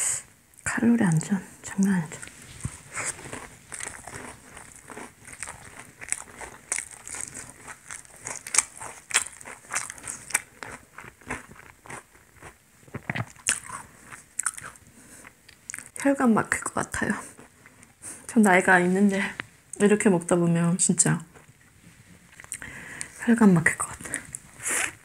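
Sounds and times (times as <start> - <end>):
chewing fried bread: 1.2 - 16.1, 17.0 - 18.5, 21.2 - 23.2.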